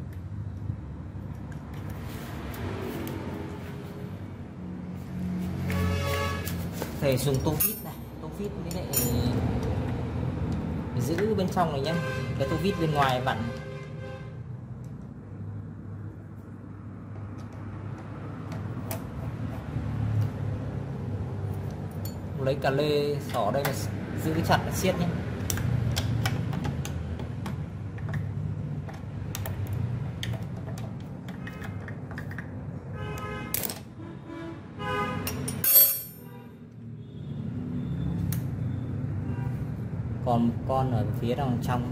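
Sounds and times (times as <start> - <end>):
spanner clinking on metal: 7.4 - 8.1, 8.7 - 9.4, 21.6 - 22.3, 35.3 - 36.3.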